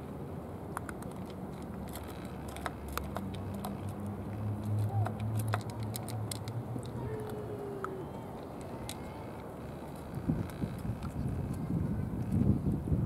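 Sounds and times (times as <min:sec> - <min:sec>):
cats chewing and lapping: 0:00.8 - 0:09.1.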